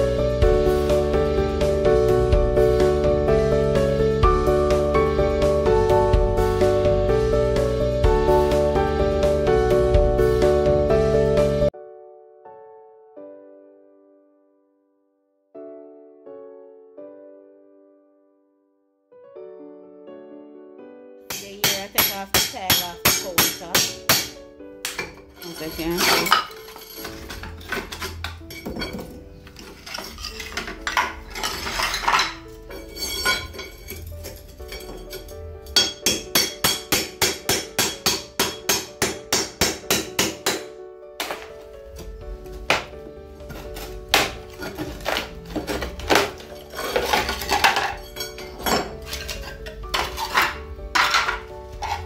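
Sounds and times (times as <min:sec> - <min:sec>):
background music: 0:00.0 - 0:14.8, 0:15.6 - 0:52.0
chisel rasping scrape: 0:21.3 - 0:37.0, 0:43.4 - 0:52.0
ceramic tiles clinking on concrete: 0:24.9 - 0:36.6, 0:44.6 - 0:52.0.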